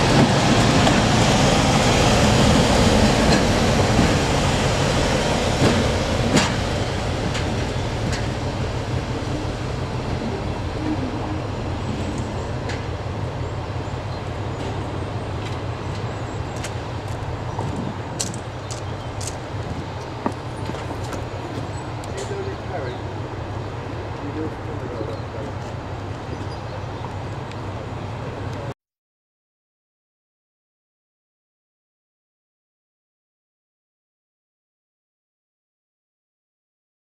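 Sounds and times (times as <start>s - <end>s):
diesel locomotive engine: 0.0s - 28.7s.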